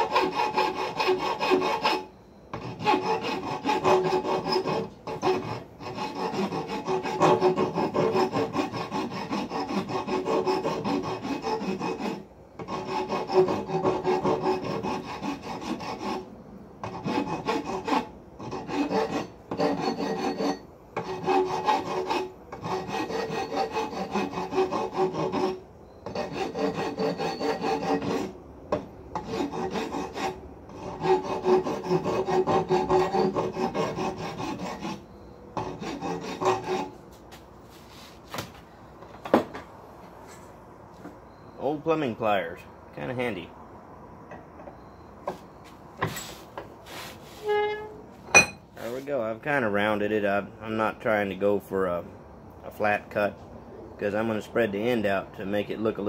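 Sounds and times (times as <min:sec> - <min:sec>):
hand file rasping on steel: 0:00.0 - 0:37.0
steel ringing: 0:47.5 - 0:48.7.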